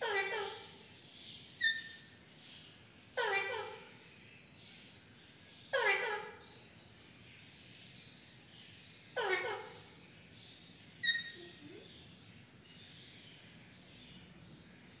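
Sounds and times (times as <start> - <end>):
parakeet speech-like call: 0.0 - 0.9, 3.1 - 4.0, 5.7 - 6.5, 9.2 - 10.0, 11.0 - 12.1
parakeet sharp chirp: 11.0 - 11.6.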